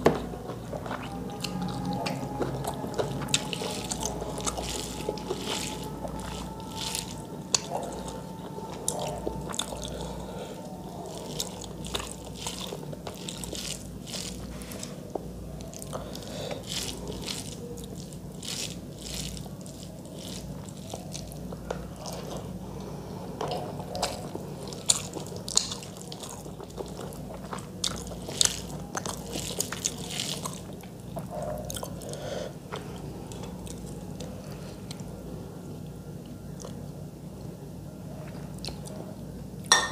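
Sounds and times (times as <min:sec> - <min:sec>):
low hum: 0:00.0 - 0:25.6
wet chewing and mouth smacks: 0:23.4 - 0:32.1.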